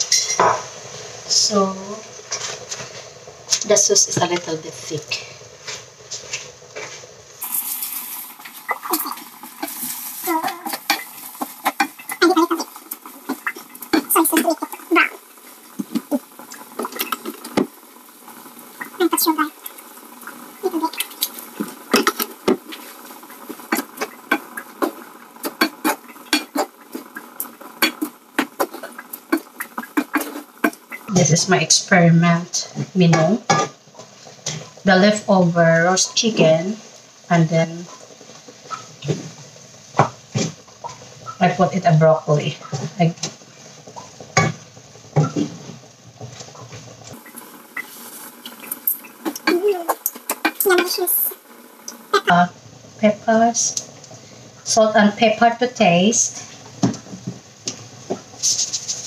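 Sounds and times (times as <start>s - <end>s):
faint sizzle: 0.0s - 59.0s
faint steady hiss: 0.0s - 59.0s
wooden spoon knocking on pan: 0.1s - 0.7s, 40.0s - 40.6s, 56.8s - 58.3s
wooden spatula stirring in a wok: 2.2s - 31.1s, 42.5s - 52.4s, 56.0s - 59.0s
spatula clacking against pan: 27.8s - 31.0s.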